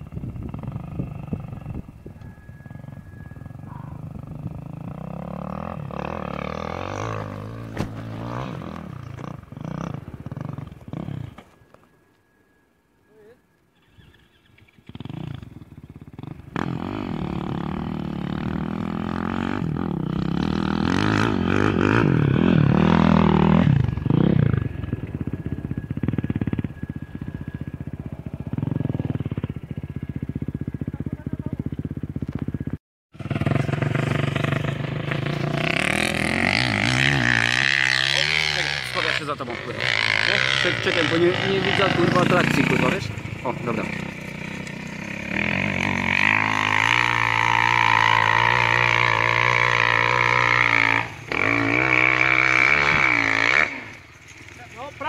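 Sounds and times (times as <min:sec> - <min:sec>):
dirt bike engine revving: 0:00.0 - 0:11.6, 0:13.9 - 0:55.0
sharp crack: 0:07.6 - 0:08.3.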